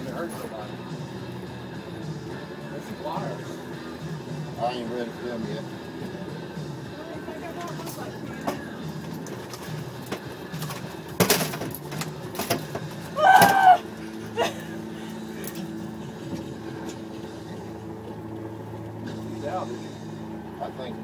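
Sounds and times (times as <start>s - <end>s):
boat engine humming: 0.0s - 21.0s.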